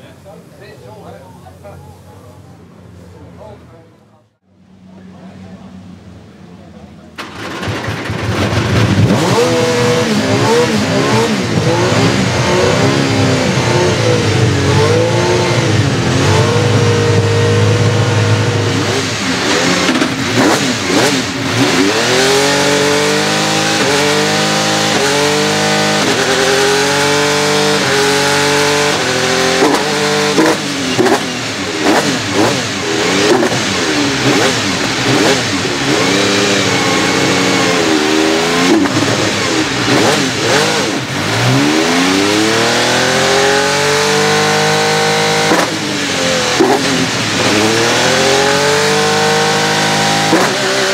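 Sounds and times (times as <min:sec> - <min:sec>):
exhaust cracks: 0:07.1 - 0:25.2, 0:27.8 - 0:42.6
racing engine revving: 0:07.2 - 0:50.9.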